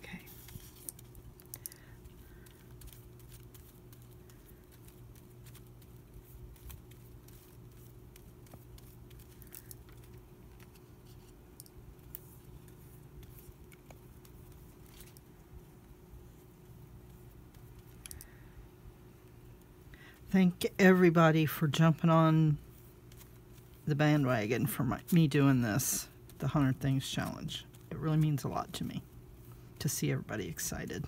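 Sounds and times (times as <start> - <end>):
paintbrush brushing on paper: 0.0 - 17.9
steady low hum: 0.0 - 31.0
light clicks and ticks: 11.5 - 15.3.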